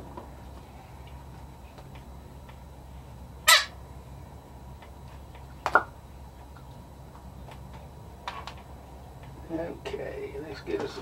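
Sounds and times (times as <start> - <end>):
steady low hum: 0.0 - 11.0
loud animal calls: 3.4 - 3.8.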